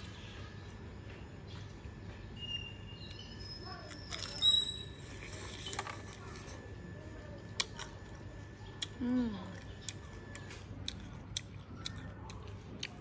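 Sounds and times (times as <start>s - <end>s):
small birds chirping: 0.0s - 5.8s
steady low hum: 0.0s - 13.0s.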